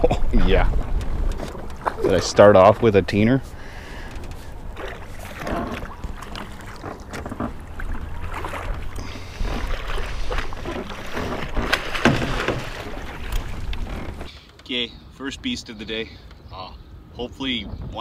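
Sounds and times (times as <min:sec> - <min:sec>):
wind rumble on microphone: 0:00.0 - 0:04.8, 0:17.3 - 0:18.0
fish thrashing and splashing: 0:01.4 - 0:02.6, 0:03.9 - 0:14.3.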